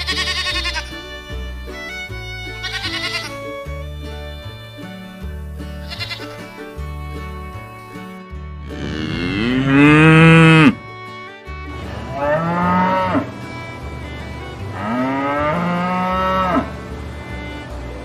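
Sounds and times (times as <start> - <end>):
background music: 0.0 - 18.0
cow mooing: 8.7 - 10.8, 12.1 - 13.3, 14.8 - 16.7.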